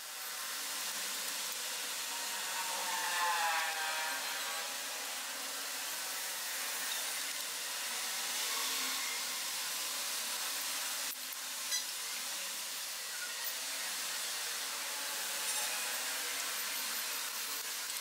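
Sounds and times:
steady hiss: 0.0s - 3.0s, 4.7s - 18.0s.

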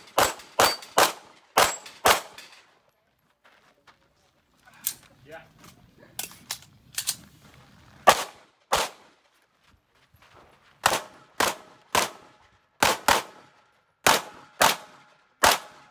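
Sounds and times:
pistol shots: 0.0s - 2.4s, 8.1s - 9.1s, 10.8s - 15.9s.

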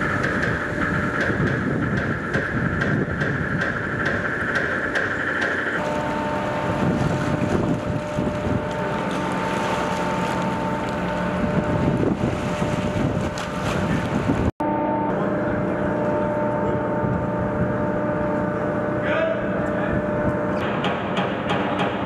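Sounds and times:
wind on microphone: 0.0s - 5.2s, 5.8s - 14.6s, 15.6s - 19.0s
steady hum: 0.0s - 21.9s
outboard motors running: 0.0s - 22.0s.

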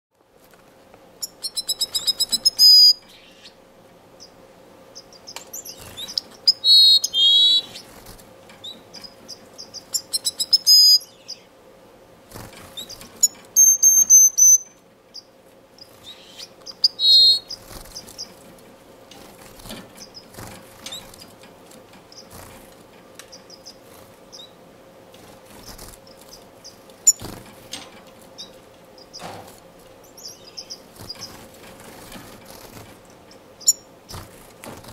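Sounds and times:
faint steady hum: 0.2s - 34.9s
bird singing rapid notes: 1.2s - 3.6s, 4.2s - 7.9s, 8.6s - 11.5s, 12.8s - 18.4s, 30.0s - 31.4s, 33.6s - 34.2s.

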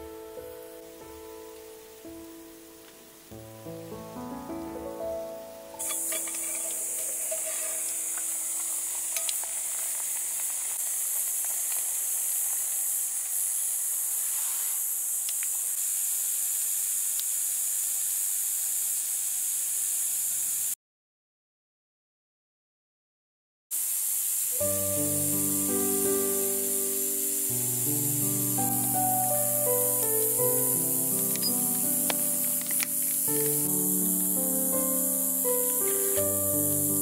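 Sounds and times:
wood fire hissing: 0.0s - 20.8s, 23.7s - 37.0s
metal clicks and clinks: 5.8s - 10.8s
soup simmering: 5.8s - 13.5s, 24.6s - 37.0s.

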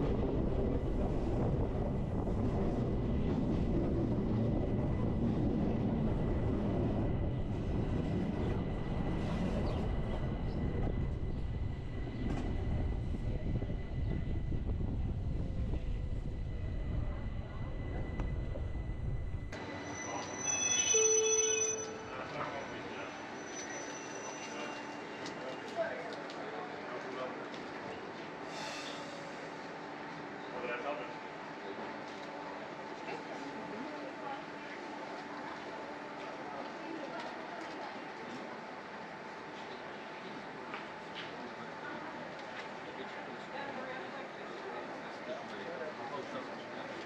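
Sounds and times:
train wheels rumbling on rail: 0.0s - 20.7s
high whine: 0.3s - 25.0s
short beeping tones: 19.7s - 22.9s.

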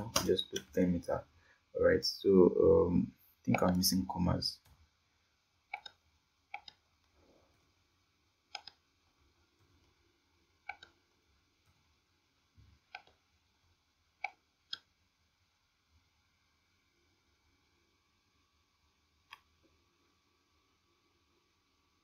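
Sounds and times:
mouse clicks: 5.7s - 6.8s, 8.5s - 8.8s, 10.6s - 11.0s, 12.9s - 13.2s, 14.2s - 14.9s
computer keyboard clicks: 8.5s - 8.8s.

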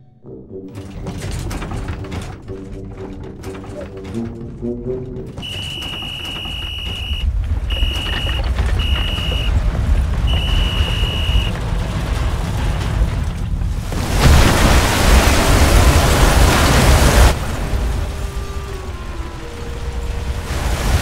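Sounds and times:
music notes: 1.9s - 9.5s
whistle blasts: 5.4s - 9.6s, 10.2s - 11.6s
low rumble: 6.6s - 20.7s.

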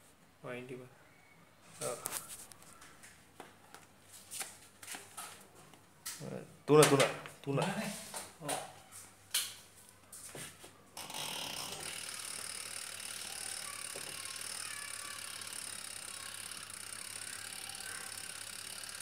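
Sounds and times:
washing machine motor whirring: 11.0s - 19.0s.

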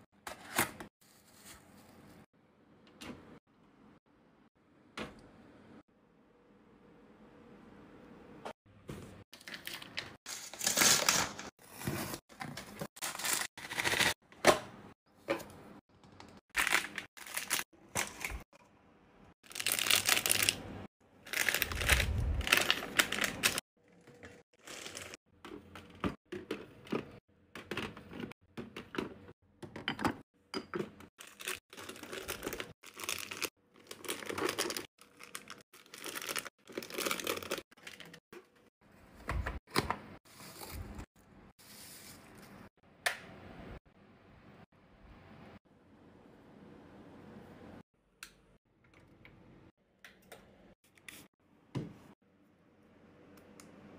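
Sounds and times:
packaging crinkling and tearing: 9.4s - 11.5s, 16.6s - 18.4s, 19.5s - 20.6s, 21.2s - 23.6s, 24.6s - 25.2s, 31.2s - 38.2s.

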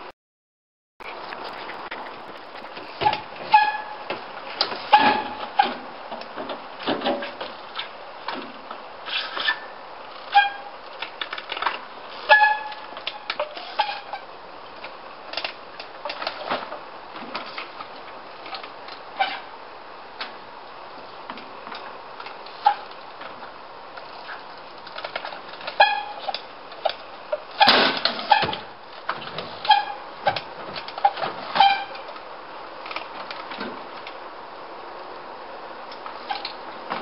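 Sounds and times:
brakes squealing: 1.0s - 6.1s, 8.9s - 19.6s, 21.8s - 33.5s, 35.9s - 37.0s.

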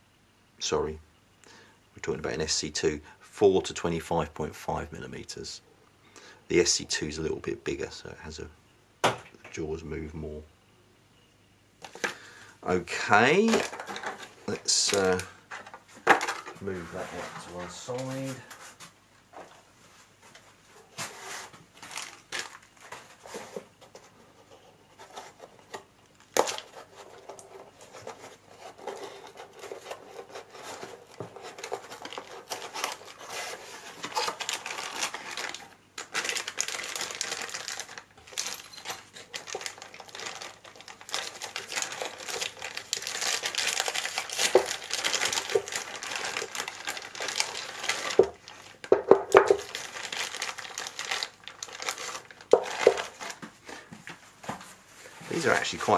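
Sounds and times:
plastic packaging crinkling: 11.8s - 15.4s, 21.7s - 23.7s, 25.0s - 53.5s.

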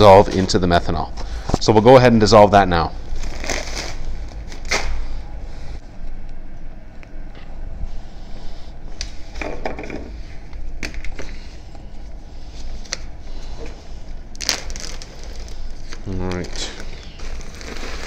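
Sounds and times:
plastic bag rustling: 0.0s - 1.0s, 3.0s - 5.0s, 12.5s - 18.0s
low steady hum: 0.0s - 18.0s.

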